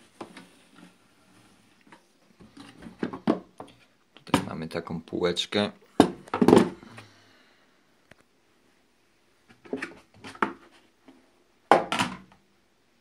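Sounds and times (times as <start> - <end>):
plastic clatter: 6.0 - 6.8.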